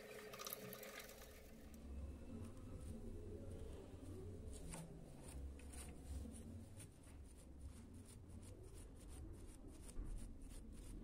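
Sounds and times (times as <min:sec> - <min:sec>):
low steady hum: 0:00.0 - 0:11.0
brush dabbing scratchy ticking: 0:02.4 - 0:11.0.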